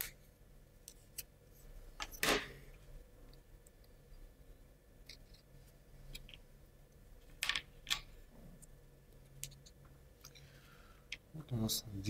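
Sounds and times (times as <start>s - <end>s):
plywood parts clicking together: 7.4s - 8.1s.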